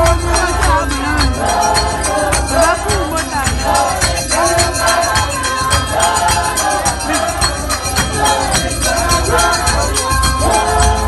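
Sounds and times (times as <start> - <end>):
congregation singing: 0.0 - 11.0
steady percussion beat: 0.0 - 11.0.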